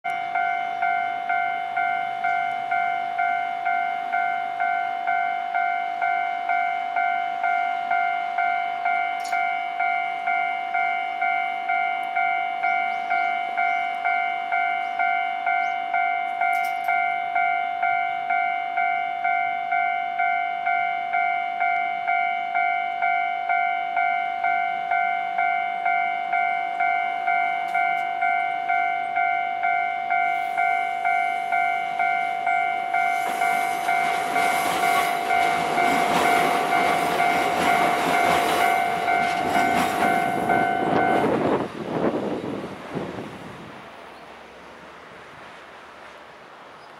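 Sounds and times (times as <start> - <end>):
crossing warning bell dinging: 0.0 - 45.1
passing train rumble: 0.1 - 46.9.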